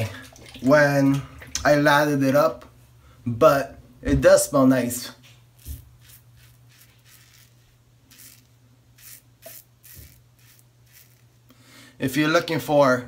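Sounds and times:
razor scraping stubble: 0:05.6 - 0:11.4.

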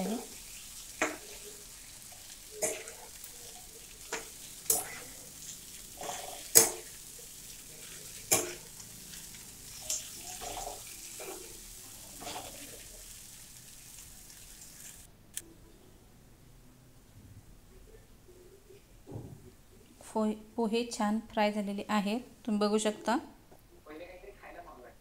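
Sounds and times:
frying sizzle: 0:00.0 - 0:15.2
spatula scraping a pan: 0:00.1 - 0:13.0.

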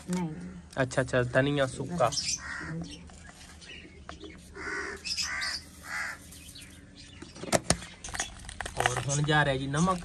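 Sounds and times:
crow cawing: 0:02.3 - 0:03.0, 0:04.5 - 0:06.4.

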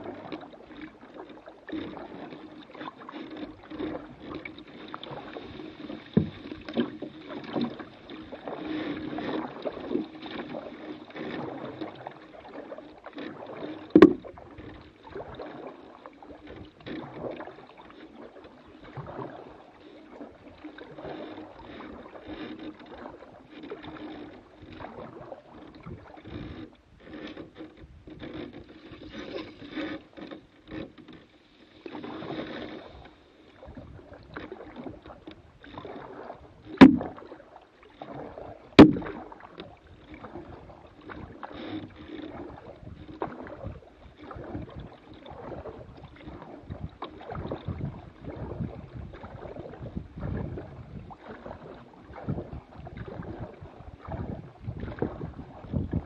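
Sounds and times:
water splashing around hull: 0:00.0 - 0:56.0
sharp knocks: 0:14.0 - 0:14.2, 0:36.8 - 0:37.1, 0:38.8 - 0:39.1.

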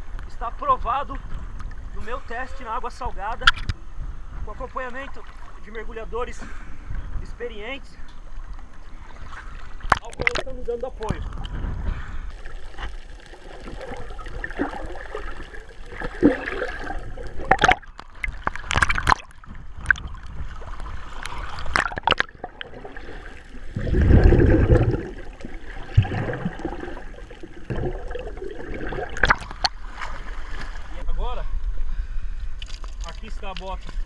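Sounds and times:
water sloshing around swimmer: 0:12.3 - 0:31.0
short sharp splashes: 0:12.4 - 0:20.3, 0:21.0 - 0:31.0
deep rush of water: 0:20.0 - 0:31.0.

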